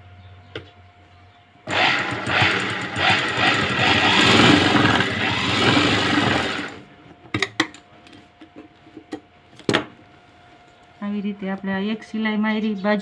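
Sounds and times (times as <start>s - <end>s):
sewing machine stitching: 1.7s - 6.8s.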